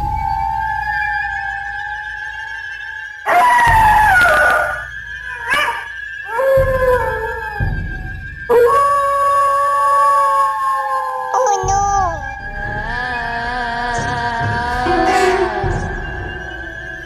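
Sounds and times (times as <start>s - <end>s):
dog howling: 3.3s - 4.8s
steady high-pitched tone: 14.6s - 17.0s.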